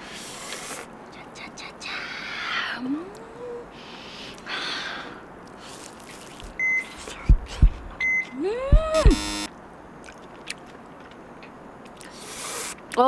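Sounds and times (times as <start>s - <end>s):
breathy exhale: 3.7s - 5.2s
heavy bass thumps: 7.2s - 8.0s, 8.6s - 9.5s
short high beeps: 8.0s - 9.5s
electronic whoop and buzz: 8.4s - 9.5s.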